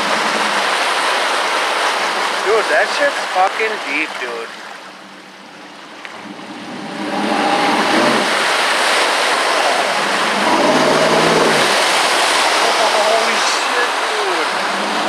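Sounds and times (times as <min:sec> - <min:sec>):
water rushing against vehicle: 0:00.0 - 0:15.0
vehicle engine running: 0:04.8 - 0:15.0.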